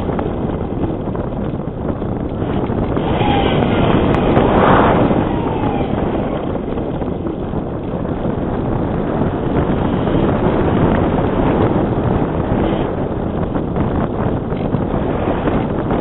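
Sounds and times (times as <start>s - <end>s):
wind rushing over microphone: 0.0s - 16.0s
electric motor whine: 2.5s - 6.8s.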